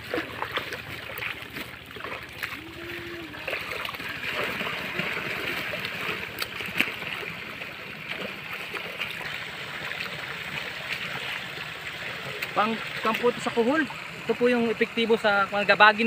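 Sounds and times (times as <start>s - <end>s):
water gurgling and splashing: 0.0s - 16.0s.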